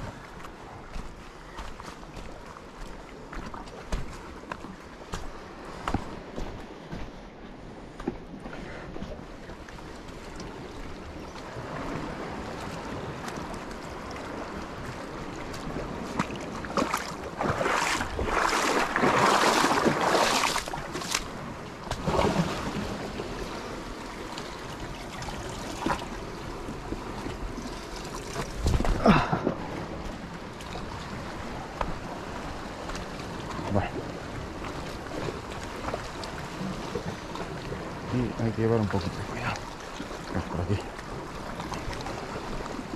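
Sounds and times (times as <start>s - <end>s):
sea water lapping on rocks: 8.0s - 42.9s.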